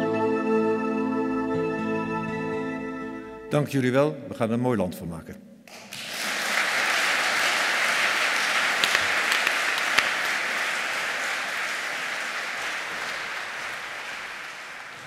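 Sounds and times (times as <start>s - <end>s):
audience applauding: 5.7s - 15.0s
sharp single claps: 8.4s - 15.0s.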